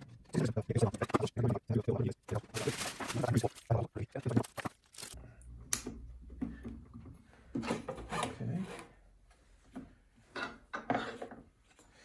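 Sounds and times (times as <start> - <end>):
rubbing and scraping handling noise: 0.0 - 5.2.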